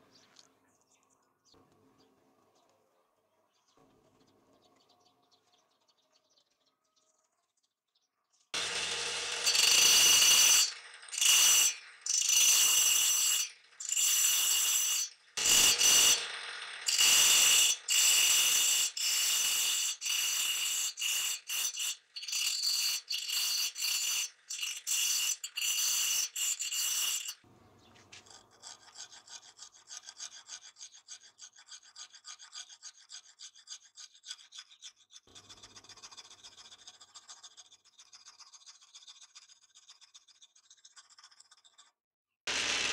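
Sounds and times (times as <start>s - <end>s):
cutting disc whining into wood: 8.6s - 27.4s, 42.5s - 42.9s
hand rasp filing wood: 8.6s - 27.4s, 28.2s - 41.4s.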